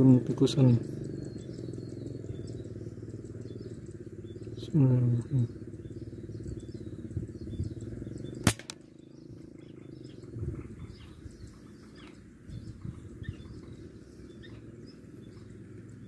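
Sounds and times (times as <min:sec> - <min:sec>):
bird chirps: 0:00.0 - 0:16.0
air rifle shot: 0:08.4 - 0:08.9.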